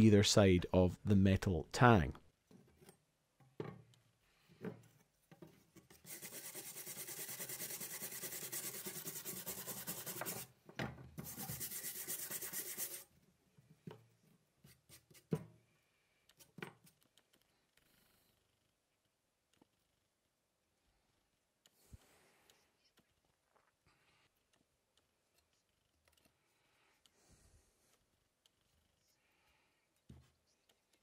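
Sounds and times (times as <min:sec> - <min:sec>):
brush scrubbing metal blade: 0:06.0 - 0:10.4, 0:11.3 - 0:13.0.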